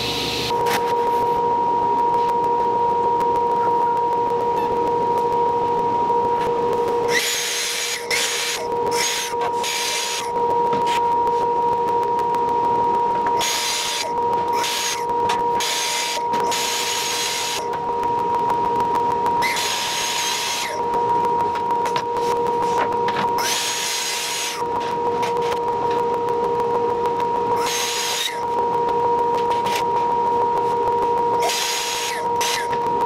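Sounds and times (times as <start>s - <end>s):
steady hum: 0.0s - 33.0s
track saw cutting panel: 7.1s - 10.3s, 13.4s - 15.0s, 15.6s - 17.7s, 19.4s - 20.8s, 22.6s - 24.6s, 27.6s - 28.4s, 31.4s - 32.8s.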